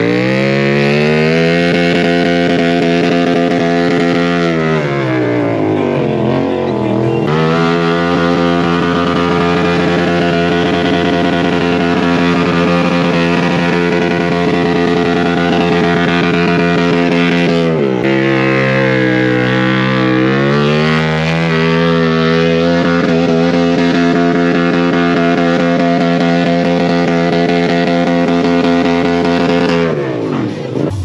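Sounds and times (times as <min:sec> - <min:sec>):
motorcycle engine revving high: 0:00.0 - 0:31.0.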